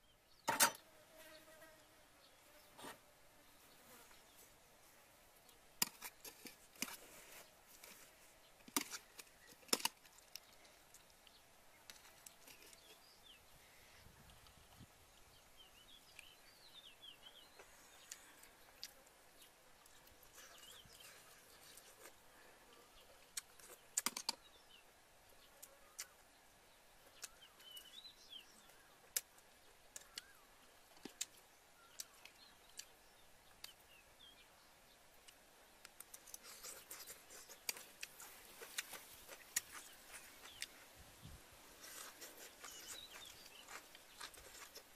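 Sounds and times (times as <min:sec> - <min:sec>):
faint bird chirps: 0:15.2 - 0:30.6.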